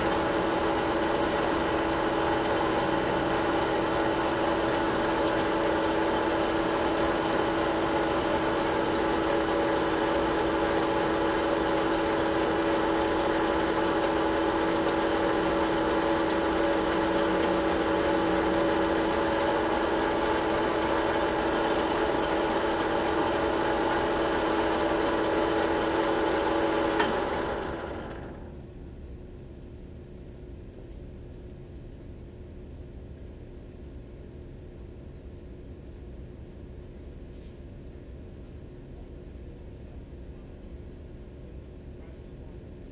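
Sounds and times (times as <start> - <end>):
metal lathe humming: 0.0 - 28.4.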